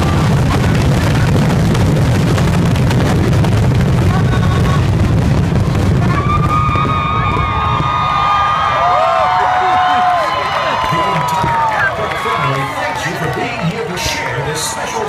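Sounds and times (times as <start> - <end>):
fireworks bursts rumbling: 0.0 - 15.0
fireworks crackling: 0.0 - 15.0
crowd whooping and cheering: 4.0 - 15.0.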